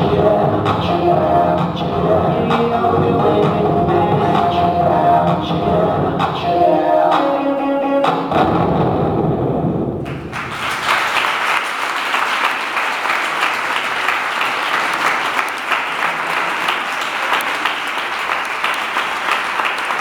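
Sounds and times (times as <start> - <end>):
dance music: 0.0 - 9.0
audience applauding: 10.0 - 20.0.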